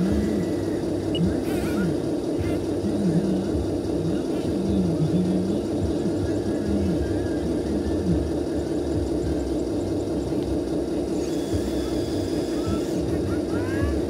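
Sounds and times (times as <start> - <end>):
excavator hydraulic hum and whir: 0.0 - 14.0.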